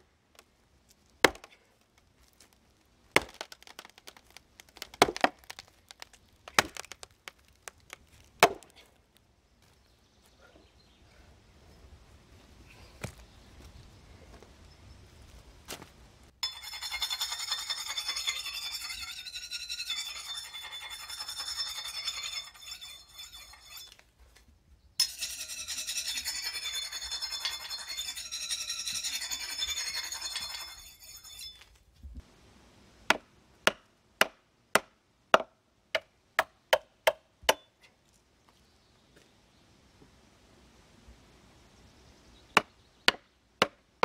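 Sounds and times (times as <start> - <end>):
metallic rasping of tools: 16.4 - 24.0, 25.0 - 31.7.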